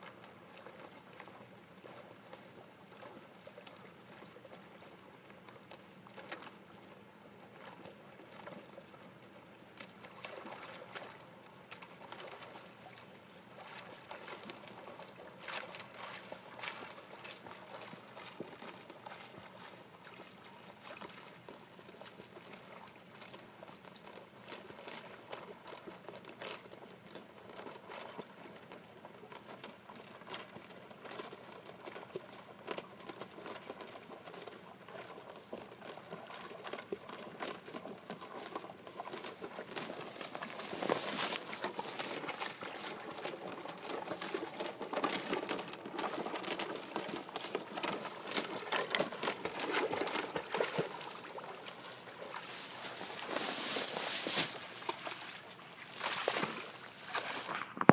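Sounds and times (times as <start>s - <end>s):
water splashing: 37.2s - 57.9s.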